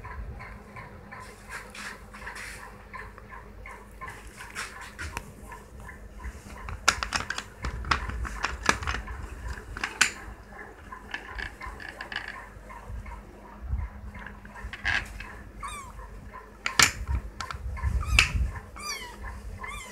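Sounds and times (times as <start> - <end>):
handling clicks and knocks: 6.7 - 10.3, 16.6 - 17.6.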